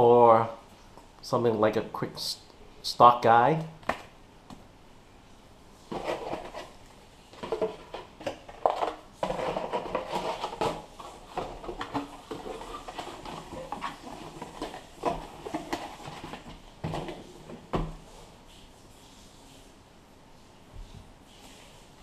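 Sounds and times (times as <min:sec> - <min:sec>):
cardboard scraping and rustling: 0:05.8 - 0:18.1.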